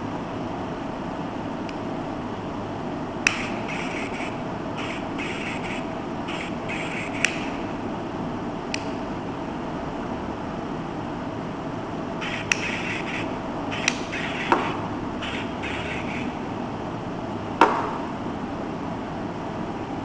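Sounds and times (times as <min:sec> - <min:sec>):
steady hiss: 0:03.3 - 0:07.9, 0:12.2 - 0:16.4
electronic dog bark yips: 0:03.4 - 0:07.7, 0:12.2 - 0:16.4.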